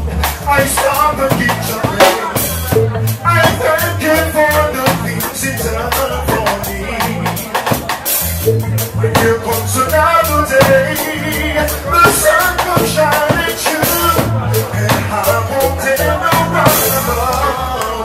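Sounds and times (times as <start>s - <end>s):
drum kit beat: 0.0s - 18.0s
man singing into microphone: 0.0s - 18.0s
reggae bass line: 0.0s - 18.0s.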